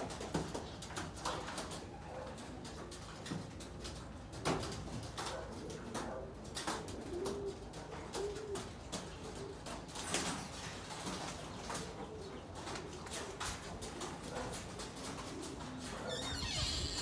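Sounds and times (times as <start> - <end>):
pigeons cooing: 5.1 - 10.0, 10.6 - 16.2.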